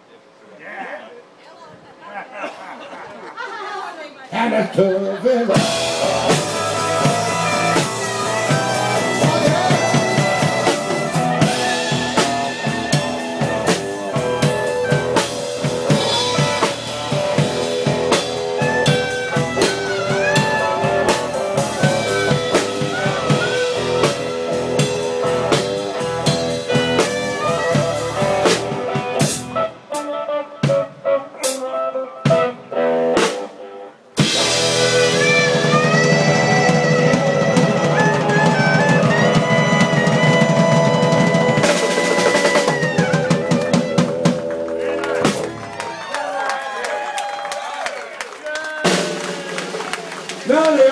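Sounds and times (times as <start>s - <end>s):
electric guitar: 5.5s - 46.2s
drum kit: 5.5s - 46.3s, 48.6s - 50.9s
clarinet playing lead: 5.9s - 45.5s.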